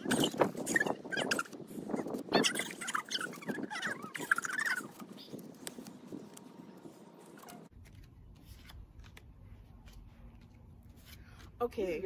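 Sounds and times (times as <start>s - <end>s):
playing cards snapping and rustling: 4.4s - 6.6s, 7.2s - 11.6s.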